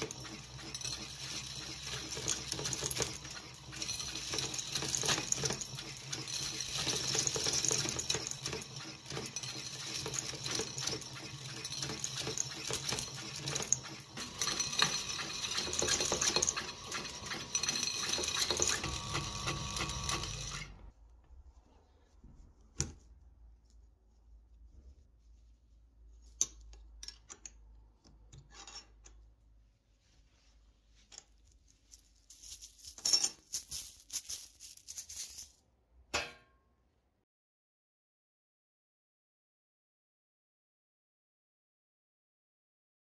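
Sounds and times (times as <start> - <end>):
coins rattling and clicking: 0.0 - 20.7, 31.2 - 35.6
coin counting machine motor: 0.0 - 20.9.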